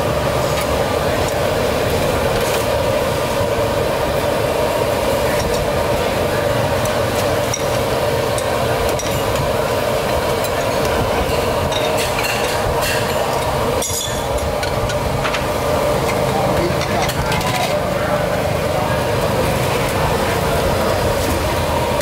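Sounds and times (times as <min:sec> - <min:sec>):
busy street food stall roar: 0:00.0 - 0:22.0
utensils and bowls clinking: 0:06.8 - 0:09.5, 0:10.3 - 0:17.9.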